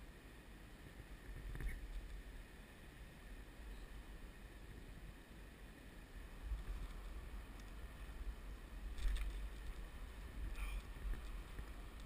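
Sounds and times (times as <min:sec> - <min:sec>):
muffled low rumble of camera handling: 0:06.5 - 0:08.1, 0:08.9 - 0:12.0.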